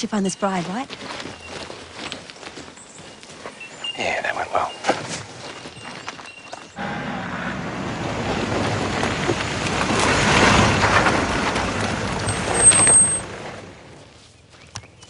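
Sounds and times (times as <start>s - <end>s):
vehicle moving through undergrowth: 0.0s - 15.0s
four-wheel-drive vehicle engine: 6.8s - 14.7s
high squeal: 12.3s - 13.3s.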